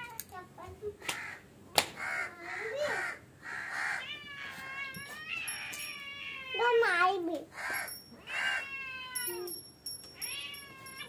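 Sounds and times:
cat meowing: 3.8s - 9.5s, 10.2s - 11.0s.

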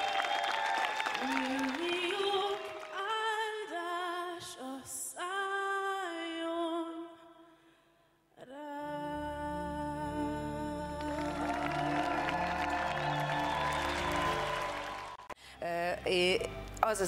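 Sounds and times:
woman singing long held notes: 1.2s - 7.0s, 8.4s - 13.0s.

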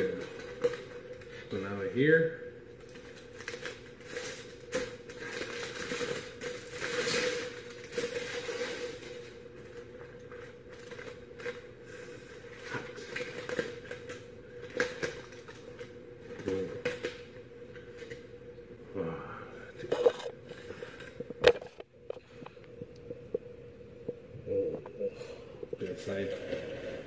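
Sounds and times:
aluminium foil crinkling: 0.0s - 1.8s, 2.7s - 18.2s.

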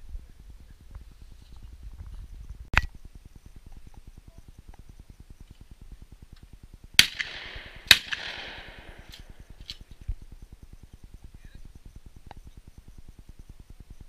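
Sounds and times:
shotgun shots with echo: 7.0s - 9.4s.

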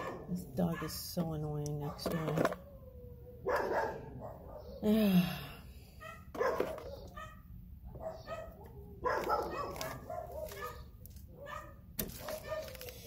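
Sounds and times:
dog barking: 0.0s - 1.0s, 3.4s - 4.8s, 6.0s - 12.8s.

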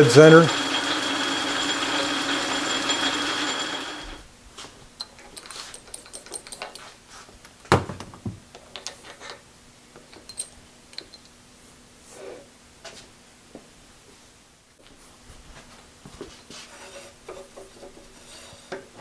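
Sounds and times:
metal lathe whirring: 0.0s - 4.2s
metal parts clicking: 5.0s - 6.8s.

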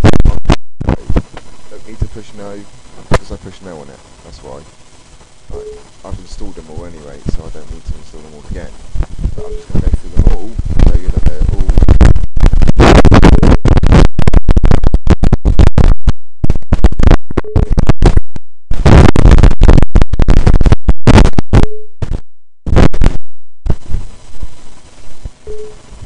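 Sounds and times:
harsh clipped noise bursts: 0.0s - 15.9s
steady tone: 0.9s - 26.0s
faint hiss: 1.0s - 11.8s.

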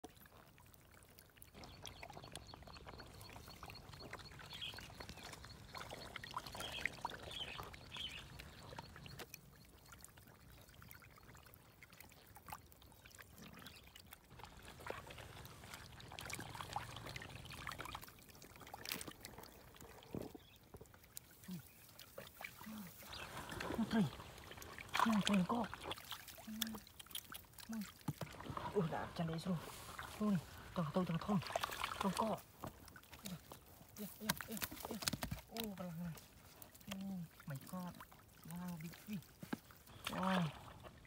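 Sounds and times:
water splashing and trickling: 0.0s - 41.0s
fish thrashing in water: 21.7s - 29.2s, 31.4s - 41.0s.

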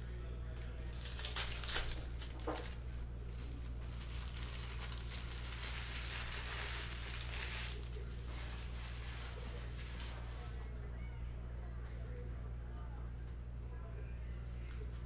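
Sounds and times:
steady low hum: 0.0s - 15.0s
foil wrapper crinkling and tearing: 0.6s - 10.7s.

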